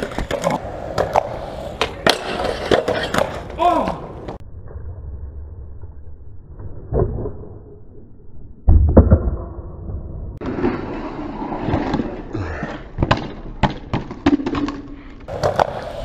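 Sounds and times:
skateboard sliding on wood: 0.0s - 4.3s, 10.4s - 12.3s, 15.2s - 16.0s
skateboard wheels rolling on concrete: 0.0s - 6.6s, 10.4s - 16.0s.

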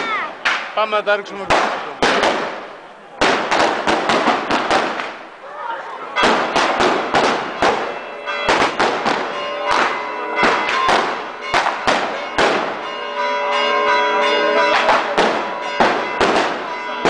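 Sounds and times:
firecrackers banging: 0.0s - 17.0s
church bells ringing: 5.8s - 17.0s.

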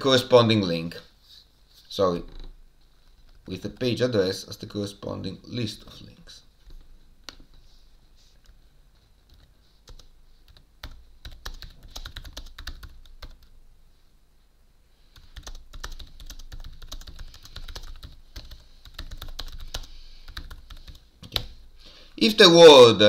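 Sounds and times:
keyboard typing clicks: 15.2s - 21.5s.

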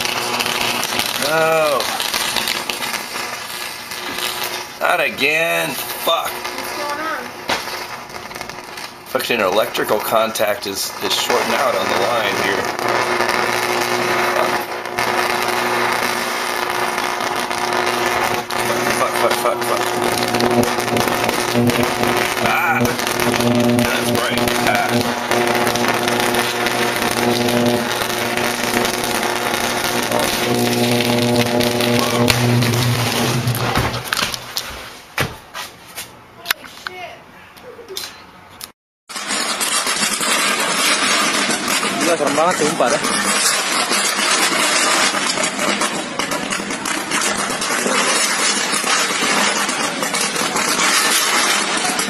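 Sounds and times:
electrical arc buzzing: 0.0s - 34.8s, 39.1s - 52.0s
sharp electrical crackles: 0.0s - 34.9s, 39.1s - 52.0s.

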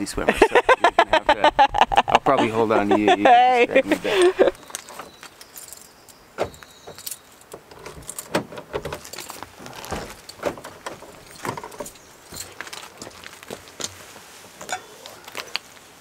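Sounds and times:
keys jangling: 4.6s - 10.4s, 11.2s - 12.9s.

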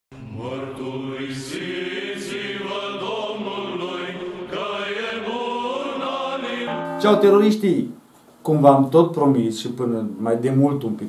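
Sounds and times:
chanted vocal music: 0.1s - 7.8s.

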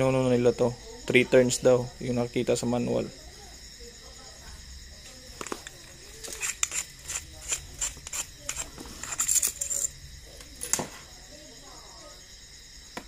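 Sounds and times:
jangle of metal parts: 6.2s - 10.0s.

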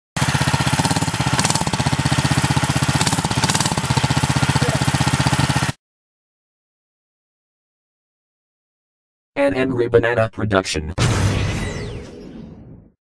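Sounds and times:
engine exhaust pulsing: 0.2s - 5.8s.

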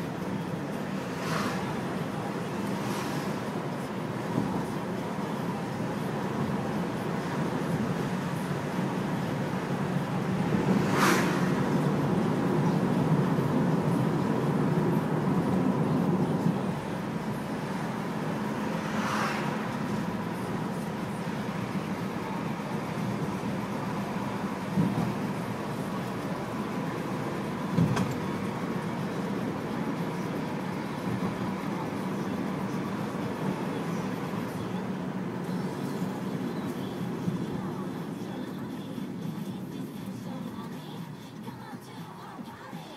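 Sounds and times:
car cabin road and engine noise: 0.0s - 42.9s
passing van hiss: 9.7s - 13.2s, 17.8s - 29.2s.

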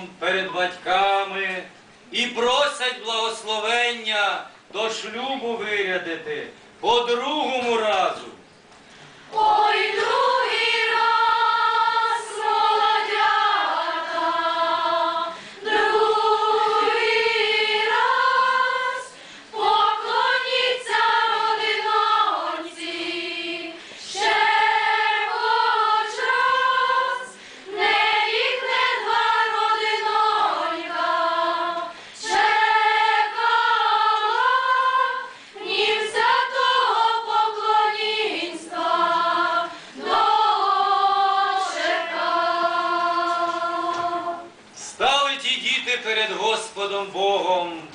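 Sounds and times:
choir singing unaccompanied: 9.3s - 44.7s.

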